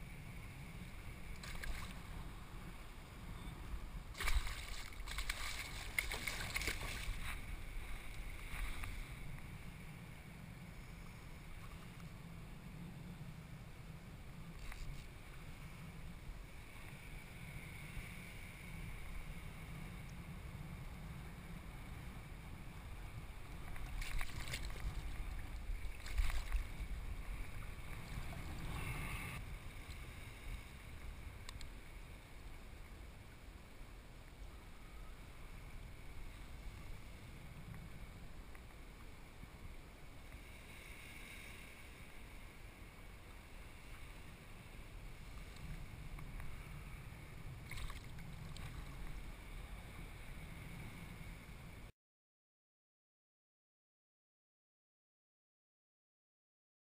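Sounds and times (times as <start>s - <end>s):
wind rumbling on microphone: 0.0s - 51.9s
fish splashing in water: 4.2s - 7.2s.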